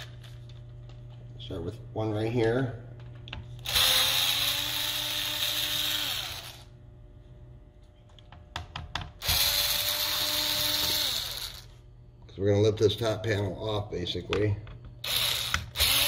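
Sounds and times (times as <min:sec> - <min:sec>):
electric screwdriver motor running: 0:03.6 - 0:06.7, 0:09.2 - 0:11.7, 0:15.0 - 0:16.0.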